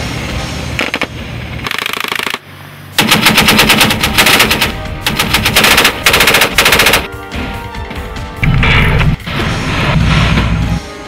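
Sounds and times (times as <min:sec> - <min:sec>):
heavy machine gun bursts: 0:03.0 - 0:07.1.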